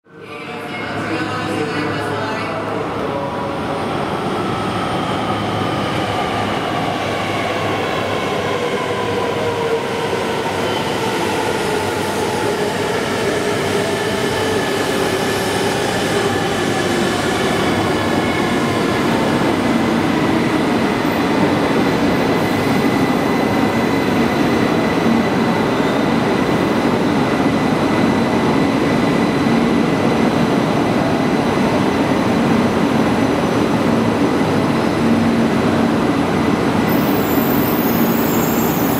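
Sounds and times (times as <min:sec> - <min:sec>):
train braking whine: 0:36.9 - 0:38.9.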